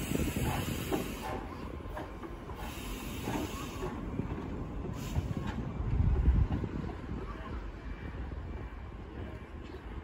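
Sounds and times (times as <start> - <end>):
steam locomotive exhaust hiss: 0.0 - 5.9
running gear rumbling on rails: 0.0 - 10.0.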